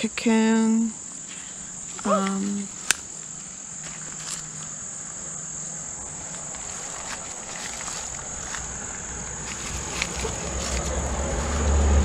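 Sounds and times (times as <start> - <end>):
insect chorus chirring: 0.0 - 12.0.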